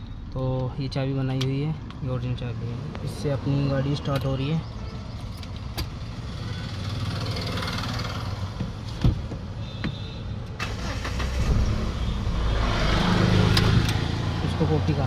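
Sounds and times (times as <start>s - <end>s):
car engine running: 10.8s - 15.0s.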